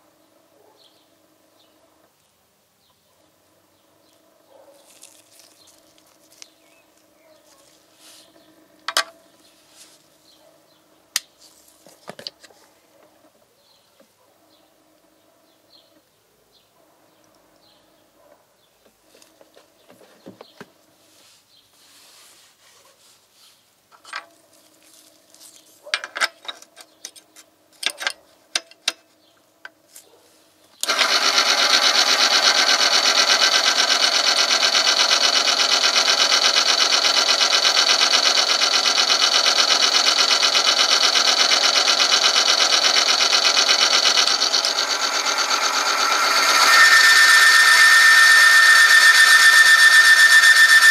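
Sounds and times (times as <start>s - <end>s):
small clicks and knocks: 25.6s - 29.8s
motor grinding hiss: 30.8s - 50.9s.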